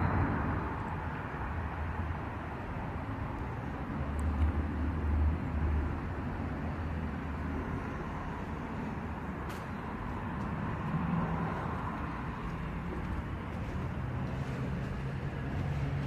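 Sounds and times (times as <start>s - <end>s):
distant traffic hum: 0.0s - 16.0s.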